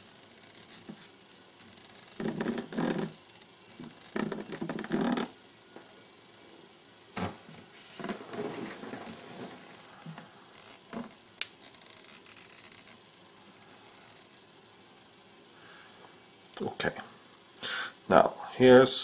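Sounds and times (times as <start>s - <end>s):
hands scratching and rubbing thread: 0.0s - 5.3s, 8.0s - 13.0s.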